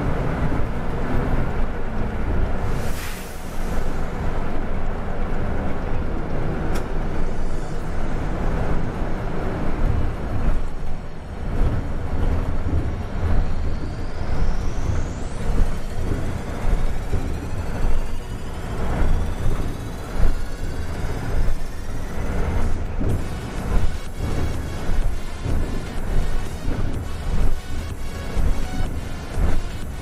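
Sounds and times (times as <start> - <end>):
bus engine rumble and road noise: 0.0 - 30.0.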